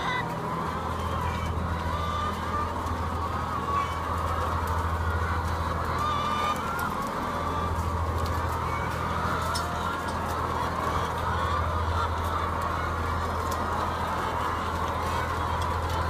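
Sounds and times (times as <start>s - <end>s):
hens clucking and squawking: 0.0s - 16.0s.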